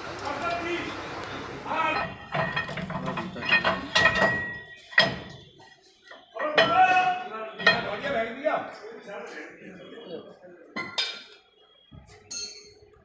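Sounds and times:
steel tools clanking on metal: 1.8 - 8.2, 10.8 - 11.4, 12.2 - 12.8.

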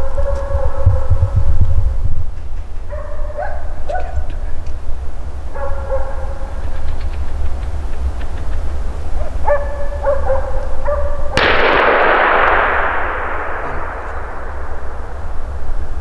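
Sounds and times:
dog barking: 0.0 - 1.4, 2.9 - 4.5, 5.5 - 6.8, 9.2 - 11.4
rifle shot with echo: 11.4 - 16.0.

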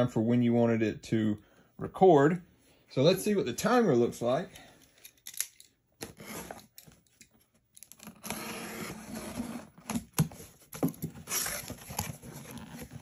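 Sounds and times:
cardboard knocks and rustles: 9.8 - 13.0.

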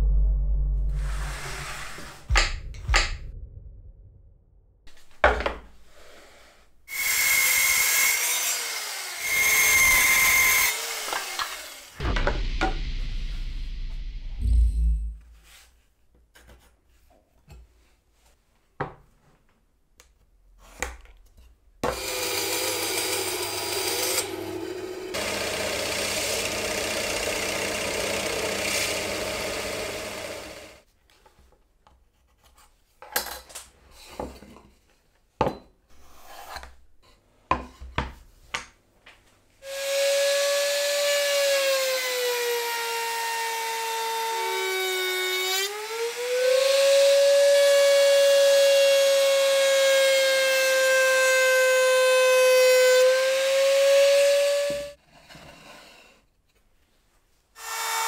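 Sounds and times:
power tool whine: 6.9 - 12.0, 21.9 - 30.8
drill press boring into wood: 21.8 - 30.8.

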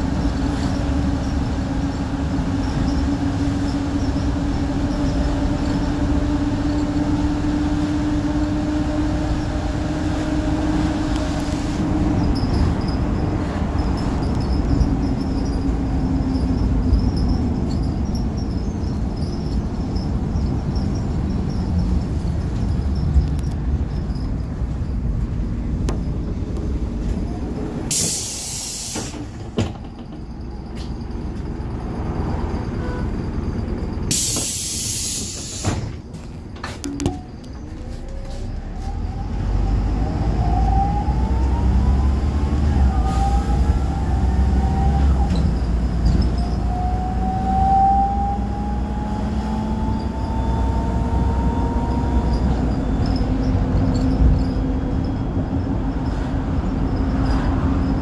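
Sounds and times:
bus engine whine: 0.0 - 58.0
road noise: 0.0 - 58.0
compressed air hiss: 27.9 - 29.2, 34.1 - 35.9.

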